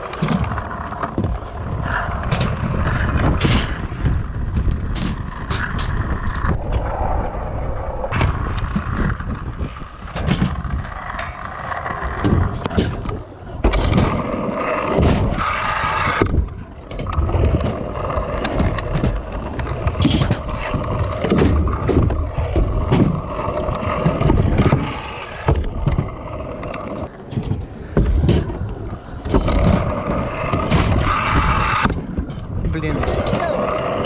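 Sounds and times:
scooter wheels rolling on concrete: 0.0s - 7.2s, 7.8s - 34.0s
scooter deck clacking and knocking: 10.0s - 34.0s.

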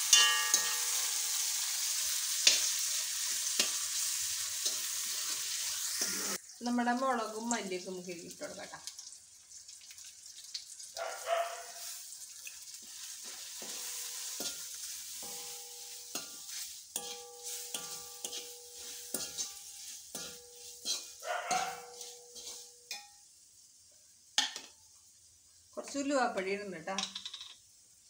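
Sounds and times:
steel spoon clinking and scraping pan: 0.0s - 6.4s, 12.8s - 23.3s
spices sizzling in a pan: 0.0s - 28.0s.

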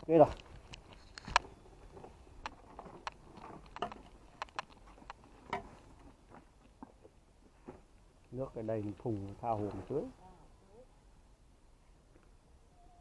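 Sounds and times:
footsteps clicking and tapping: 0.2s - 7.1s.

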